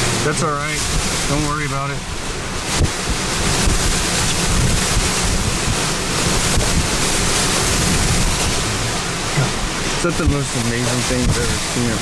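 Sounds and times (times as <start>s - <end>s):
strong wind on microphone: 2.1s - 8.8s.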